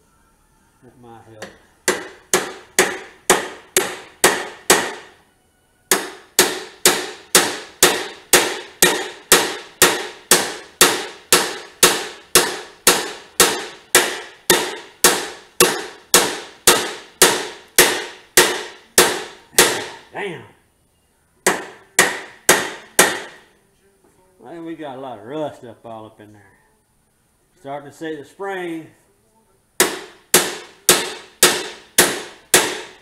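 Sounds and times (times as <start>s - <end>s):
hammer striking steel: 1.4s - 5.2s, 5.9s - 20.1s, 21.4s - 23.5s, 29.8s - 33.0s.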